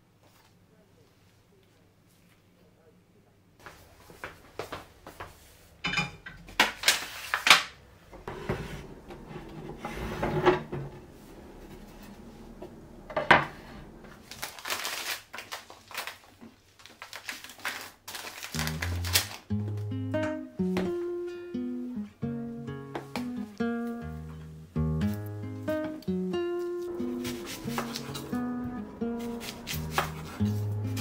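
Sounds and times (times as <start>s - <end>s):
knocks and clatters of kitchenware: 5.8s - 6.9s.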